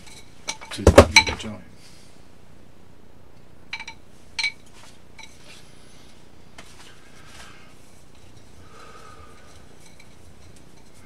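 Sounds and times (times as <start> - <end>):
nunchaku sticks clinking: 3.7 - 5.4.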